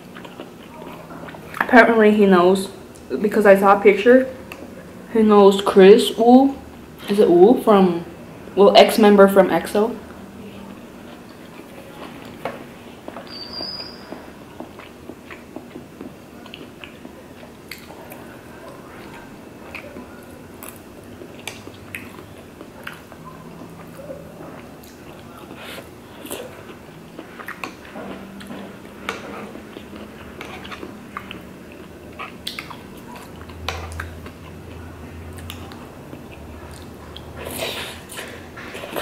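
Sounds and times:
chewing and biting: 14.1s - 39.0s.

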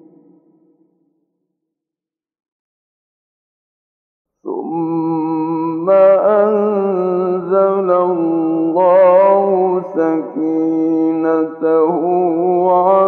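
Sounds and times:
man chanting melodically: 4.5s - 13.0s.

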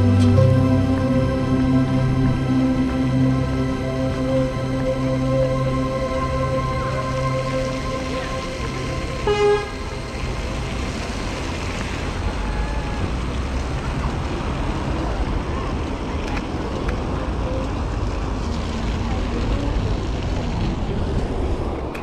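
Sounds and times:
city street traffic: 0.0s - 22.0s
vehicle horn toot: 9.0s - 10.1s.

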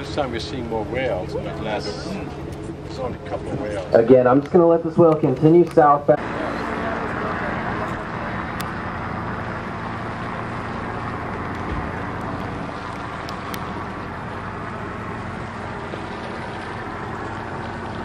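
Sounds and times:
boat engine humming: 0.0s - 18.0s
water noise: 0.0s - 18.0s
wind: 0.0s - 18.0s
low thump: 11.6s - 12.1s.

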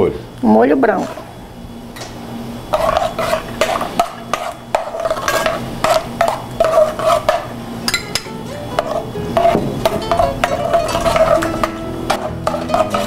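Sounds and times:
metal spoon scraping saucepan: 2.7s - 13.0s.

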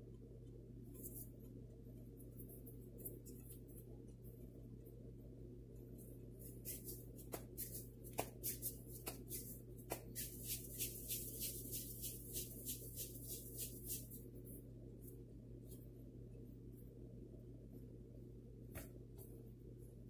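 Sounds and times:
faint low hum: 0.0s - 20.0s
hands patting dough: 6.2s - 14.4s.

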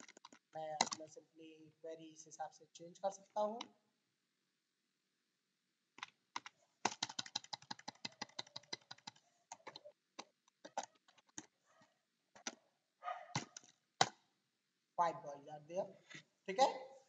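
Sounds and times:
computer keyboard typing: 6.0s - 11.5s.

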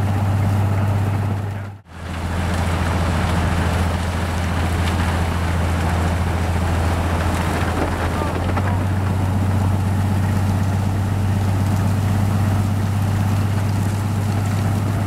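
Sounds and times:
diesel engine running: 0.0s - 15.0s
snow being ploughed aside: 1.9s - 14.6s.

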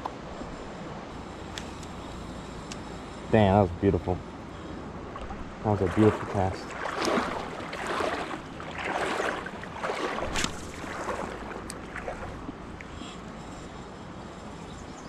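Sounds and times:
water splashing around wading legs: 5.0s - 12.9s.

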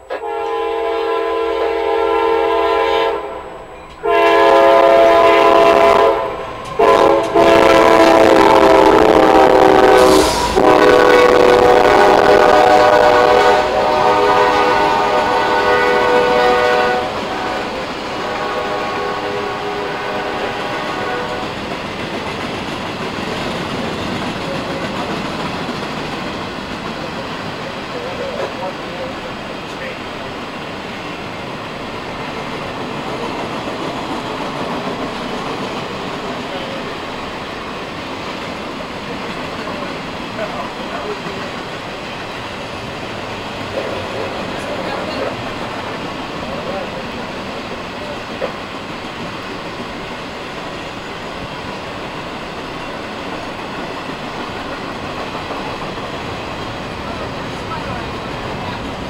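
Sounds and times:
locomotive air horn chord: 0.0s - 21.6s
rolling freight cars: 0.0s - 59.0s
steel wheels clattering on rails: 21.3s - 59.0s.

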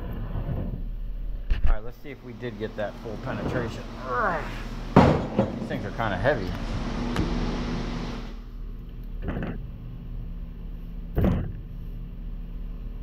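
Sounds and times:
machine hum: 0.0s - 13.0s
metal clank: 4.9s - 5.9s.

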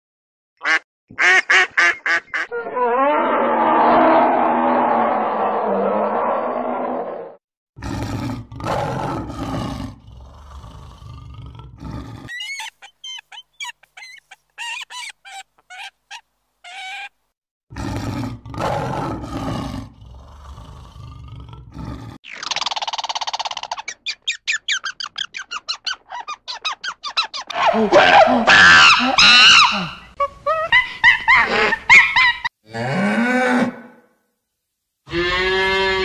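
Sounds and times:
tiger roaring and growling: 2.7s - 12.4s, 17.7s - 22.2s
rough animal noise: 7.8s - 22.2s
eagle chattering calls: 12.3s - 17.1s.

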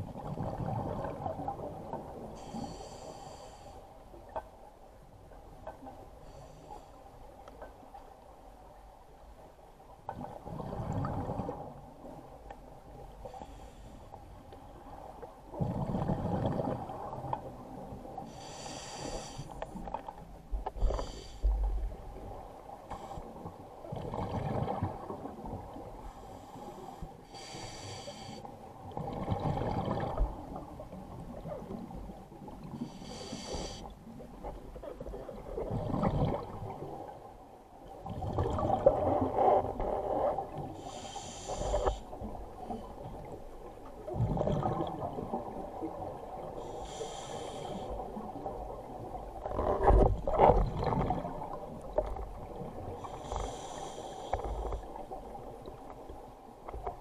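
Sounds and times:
exhaled bubbles underwater: 0.0s - 2.2s, 10.1s - 12.2s, 14.8s - 18.2s, 23.7s - 25.9s, 28.8s - 32.9s, 34.1s - 37.2s, 38.0s - 40.9s, 44.0s - 46.7s, 47.5s - 53.8s
regulator hissing inhalations: 18.3s - 19.6s, 27.3s - 28.4s, 32.9s - 33.9s, 40.8s - 42.0s, 46.6s - 48.0s, 53.0s - 54.8s.

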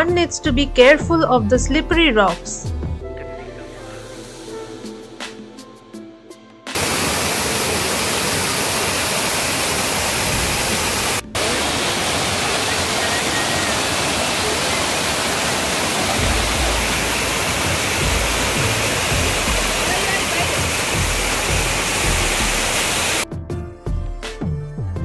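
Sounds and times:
waterfall rushing: 6.7s - 23.2s
low rumble: 16.2s - 19.9s.

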